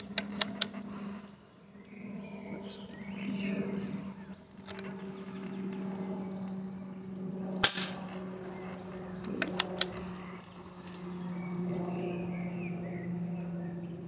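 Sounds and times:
air rifle shot crack: 7.6s - 8.2s.

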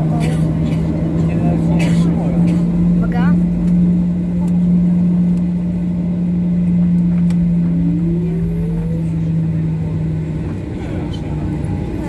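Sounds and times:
airplane engine drone: 0.0s - 12.0s
faint rising tone: 4.6s - 10.0s.

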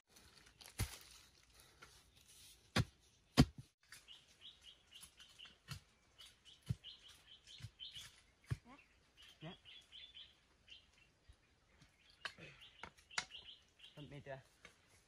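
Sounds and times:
dull knocks of digging soil: 0.6s - 1.2s, 2.4s - 4.1s, 5.0s - 8.8s.

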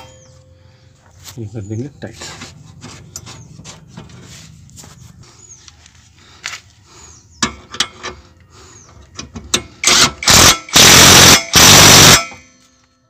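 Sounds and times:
impact wrench bursts: 9.5s - 12.4s.

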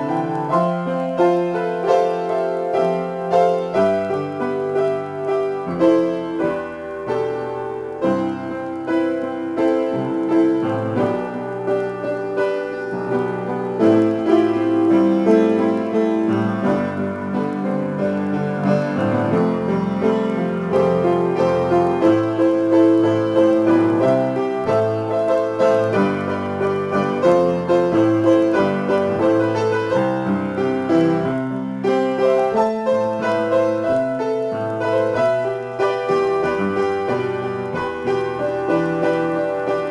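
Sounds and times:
solo piano improvisation: 0.0s - 39.9s.

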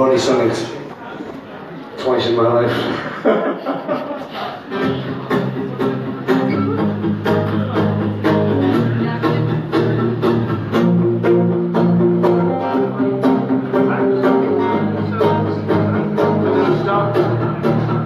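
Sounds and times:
live band instrumental music: 4.6s - 18.0s.

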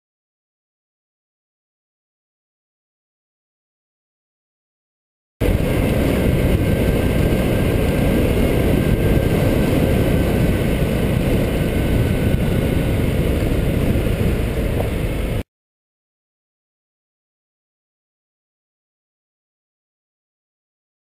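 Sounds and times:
motorcycle engine: 5.4s - 15.4s
wind rumble on microphone: 5.4s - 15.4s.

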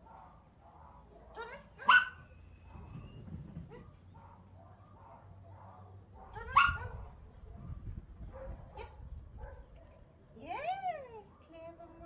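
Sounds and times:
small dog barking: 1.8s - 2.2s, 4.2s - 7.0s, 8.3s - 9.7s.

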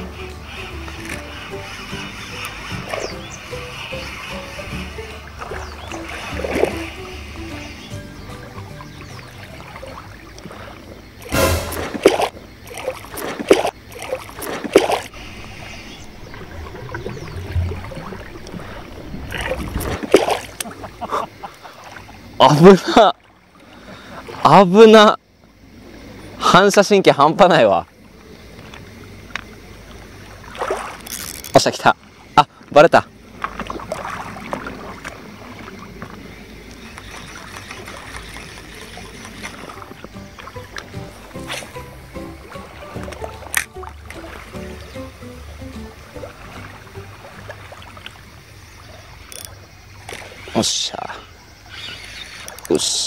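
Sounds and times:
fishing reel ticking and rustling: 0.4s - 5.2s, 30.9s - 31.8s, 36.9s - 39.8s, 49.2s - 50.8s, 51.7s - 53.0s
small waves lapping on pebbles: 9.0s - 24.6s, 28.4s - 41.8s
fish splashing at water surface: 9.7s - 21.9s, 30.4s - 31.1s
low rumble: 15.1s - 20.1s.

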